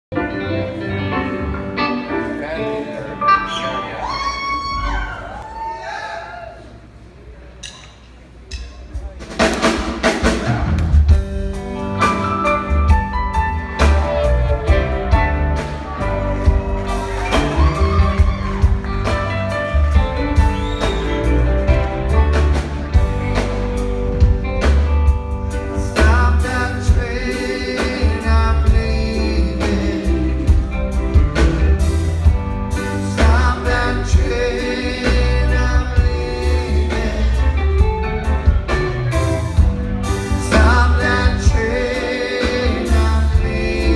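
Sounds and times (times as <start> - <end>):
live rock band playing: 0.1 - 5.4, 8.5 - 43.9
person singing: 25.7 - 31.0, 32.9 - 38.2, 40.0 - 43.9.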